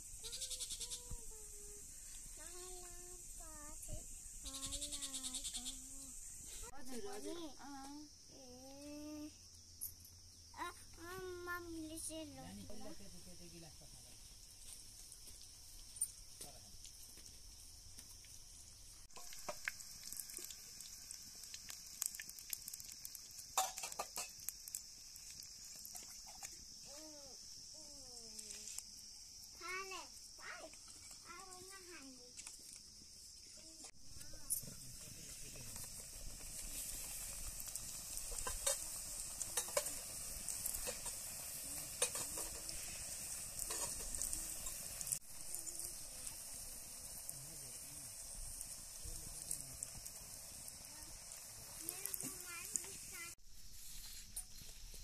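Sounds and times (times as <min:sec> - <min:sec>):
bread sizzling in a hot pan: 0:00.0 - 0:55.0
crackles and pops: 0:13.5 - 0:55.0.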